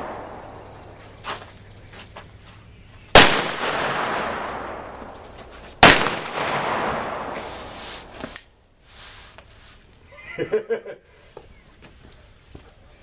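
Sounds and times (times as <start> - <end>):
revolver shots with echo: 3.2 - 5.2, 5.8 - 8.2.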